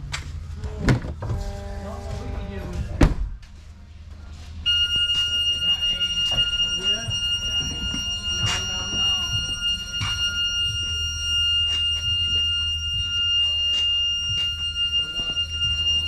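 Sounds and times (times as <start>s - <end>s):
low steady hum: 0.0s - 16.0s
high-pitched electronic tone: 4.7s - 16.0s.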